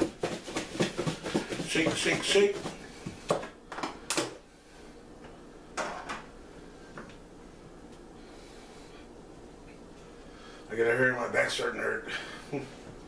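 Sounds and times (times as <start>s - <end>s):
plastic tub knocks and scrapes: 0.0s - 2.8s.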